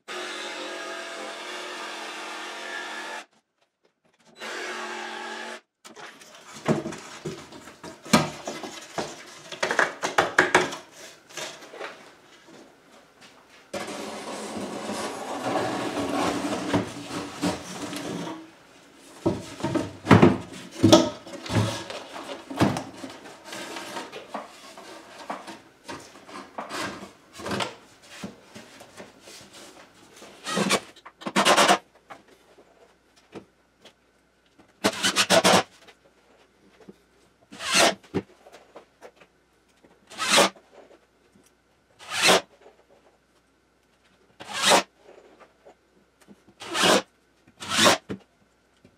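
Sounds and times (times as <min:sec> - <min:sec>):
cordless drill driving screws: 0:04.4 - 0:05.6.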